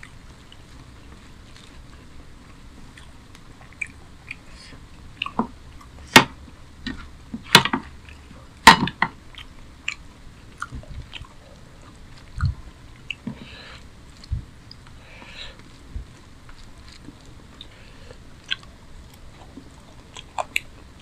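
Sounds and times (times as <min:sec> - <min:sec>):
eating by hand with wet smacks: 0:00.0 - 0:21.0.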